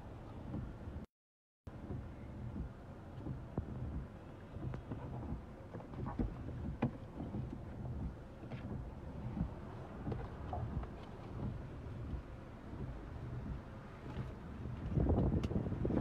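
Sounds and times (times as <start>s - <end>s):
car rumbling: 0.0s - 1.1s, 1.7s - 16.0s
rain on windscreen: 1.7s - 16.0s.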